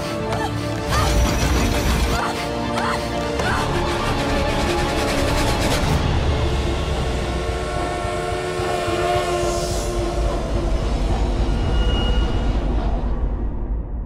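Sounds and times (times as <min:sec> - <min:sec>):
train rumble: 0:03.4 - 0:13.6
steam locomotive whistle: 0:07.2 - 0:10.8.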